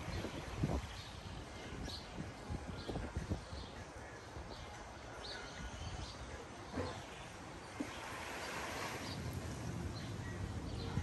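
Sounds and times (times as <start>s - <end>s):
sea water lapping at beach: 6.7s - 10.1s.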